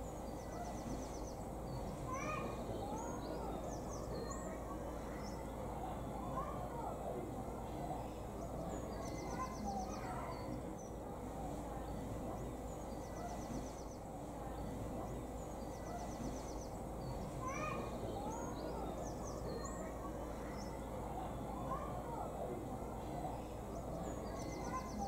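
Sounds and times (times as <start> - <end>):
steady background noise: 0.0 - 25.0
bird chirps: 11.6 - 22.3, 23.0 - 25.0.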